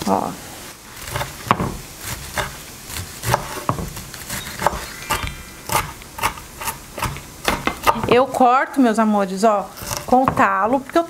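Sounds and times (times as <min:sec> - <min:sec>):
knife chopping on wooden board: 0:01.0 - 0:08.2.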